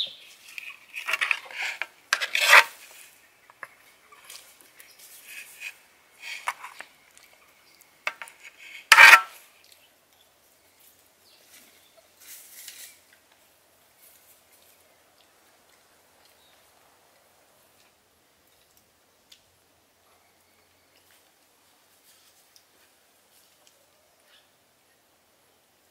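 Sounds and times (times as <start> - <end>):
utensil scraping metal pan: 0.6 - 3.1, 5.2 - 6.8, 8.1 - 9.4.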